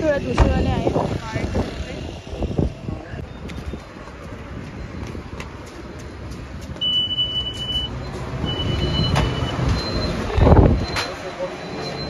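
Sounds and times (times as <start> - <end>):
traffic rumble: 0.0 - 12.0
high electronic beeps: 6.8 - 12.0.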